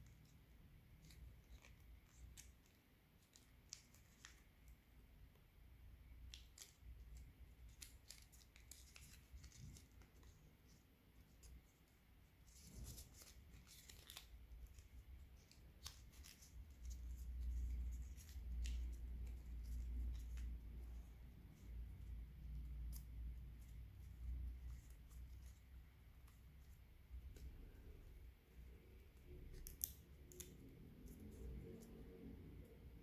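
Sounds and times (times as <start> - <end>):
paper crackling and rustling: 6.3 - 21.0.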